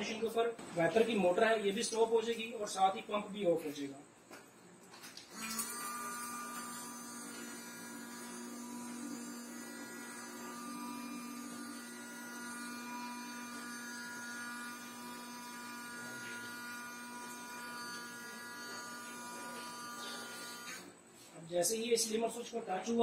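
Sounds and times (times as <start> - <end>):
washer pump spraying water: 5.3 - 20.9
electric motor humming: 5.3 - 21.0.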